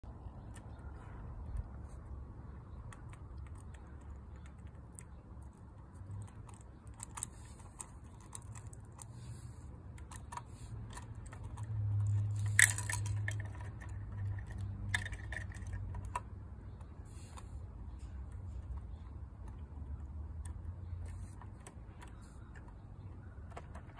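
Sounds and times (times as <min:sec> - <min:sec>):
clicks of plastic toy parts: 0:10.0 - 0:16.3.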